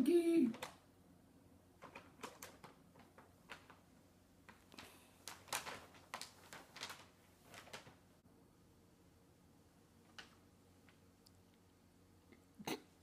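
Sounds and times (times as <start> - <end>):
paper bag crinkling: 1.8 - 8.2.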